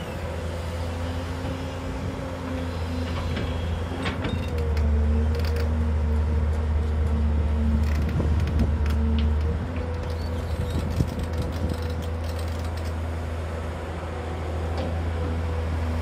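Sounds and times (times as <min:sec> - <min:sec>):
diesel excavator engine labouring: 0:00.0 - 0:16.0
clicks and creaks: 0:03.0 - 0:05.8, 0:07.0 - 0:13.1.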